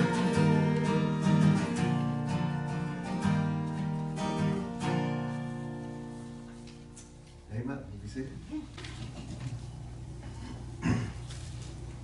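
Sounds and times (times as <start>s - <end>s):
acoustic guitar strumming chords: 0.0s - 7.5s.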